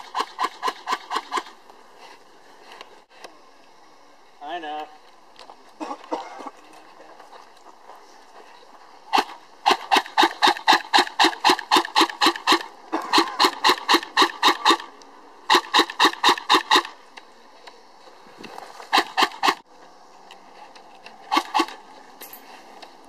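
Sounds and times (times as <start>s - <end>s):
airsoft rifle firing bursts: 9.1s - 14.9s, 15.5s - 16.9s.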